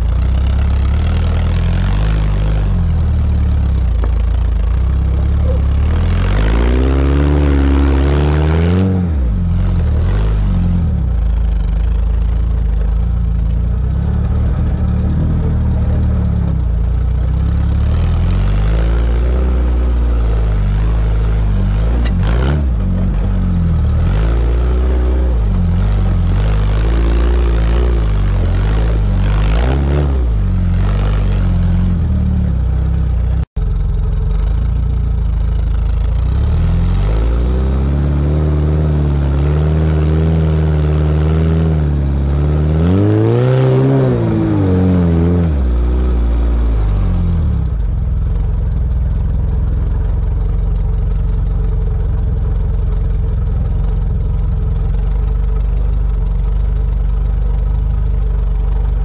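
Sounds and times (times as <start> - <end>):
car engine revving under load: 0.0 - 59.0.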